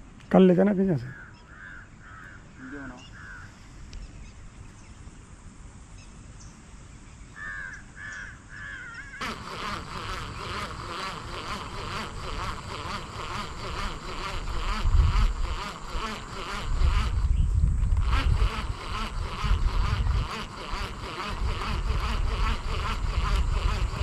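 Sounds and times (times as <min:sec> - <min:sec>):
crows cawing: 0:01.0 - 0:03.6, 0:07.4 - 0:09.2
rhythmic rasping: 0:09.2 - 0:17.3, 0:18.0 - 0:24.0.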